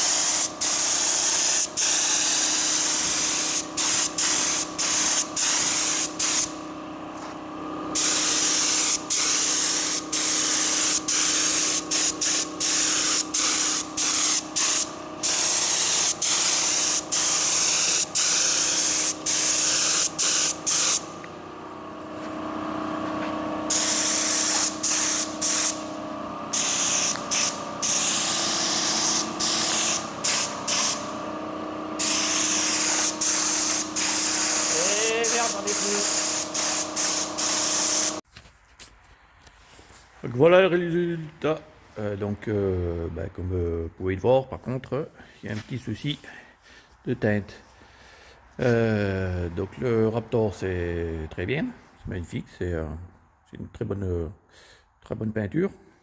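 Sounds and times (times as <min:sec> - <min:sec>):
spray gun hissing: 0:00.0 - 0:06.6, 0:07.9 - 0:21.2, 0:23.7 - 0:31.2, 0:32.0 - 0:38.2
steady low hum: 0:00.0 - 0:38.2.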